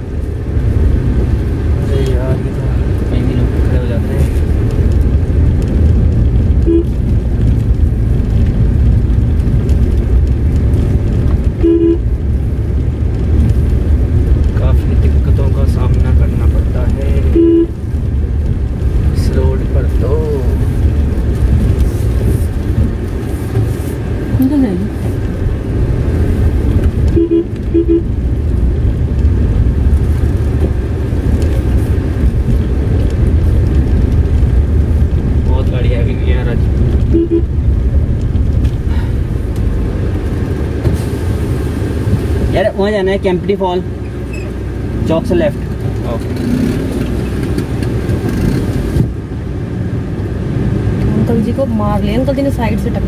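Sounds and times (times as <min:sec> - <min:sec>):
car cabin rumble: 0:00.0 - 0:53.0
car horn beeping: 0:06.6 - 0:07.0, 0:11.6 - 0:12.1, 0:17.3 - 0:17.8, 0:27.1 - 0:28.2, 0:37.1 - 0:37.5.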